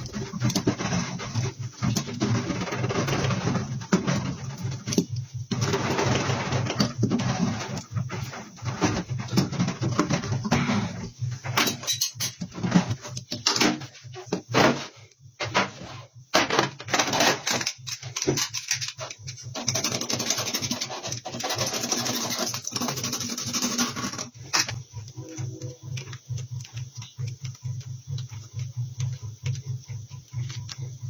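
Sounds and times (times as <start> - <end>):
scraping and rubbing on tyre: 0.0 - 13.2, 18.9 - 26.4
low steady hum: 0.0 - 31.0.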